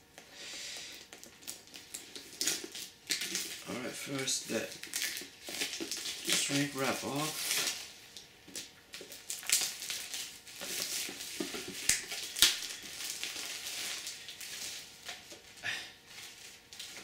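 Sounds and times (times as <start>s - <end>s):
plastic wrap crinkling: 0.8s - 17.0s.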